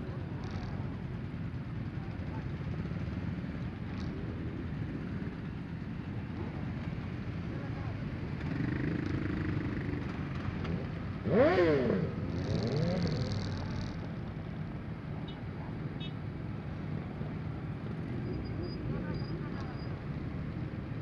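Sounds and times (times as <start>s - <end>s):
motorcycle engines idling: 0.0s - 21.0s
motorcycle engine revving: 8.4s - 14.1s.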